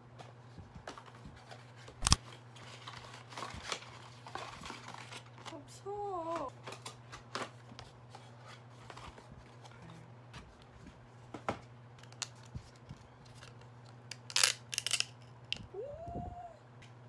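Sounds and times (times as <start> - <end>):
wavering voice-like sound: 15.7 - 16.6.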